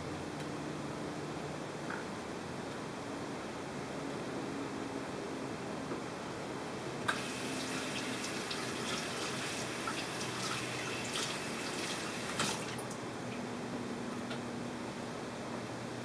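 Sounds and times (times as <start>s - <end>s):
tap water running into sink: 7.1s - 13.0s.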